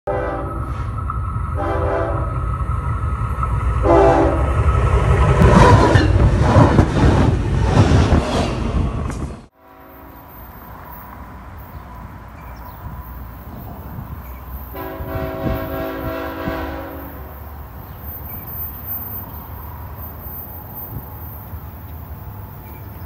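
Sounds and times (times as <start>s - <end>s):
diesel locomotive horn chord: 0.1s - 0.9s, 1.5s - 2.4s, 3.8s - 4.5s, 9.5s - 10.4s, 14.7s - 17.4s
faint distant train horn: 0.1s - 2.5s, 3.8s - 4.6s, 9.5s - 21.5s
train rumbling past: 0.1s - 23.0s.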